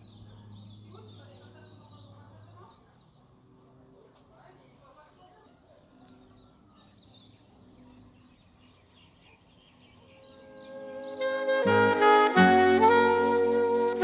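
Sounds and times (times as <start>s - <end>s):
small birds chirping: 0.0s - 12.0s
music with saxophone: 10.2s - 14.0s.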